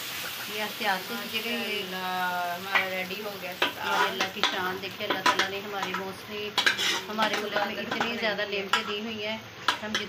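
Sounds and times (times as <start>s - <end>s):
metal ladle scraping cooking pot: 3.6s - 4.5s, 6.6s - 8.9s.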